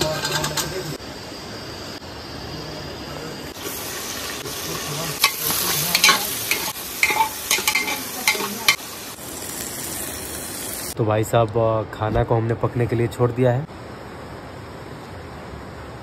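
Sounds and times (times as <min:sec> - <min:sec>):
metal utensil clanking on pot: 0:00.0 - 0:00.9, 0:05.2 - 0:08.8
food sizzling in hot oil: 0:03.4 - 0:11.0.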